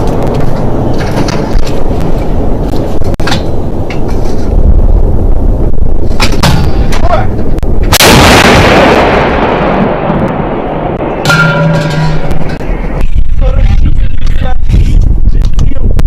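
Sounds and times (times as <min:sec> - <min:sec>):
steady low rumble: 0:00.0 - 0:16.0
howitzer blast: 0:04.6 - 0:15.3.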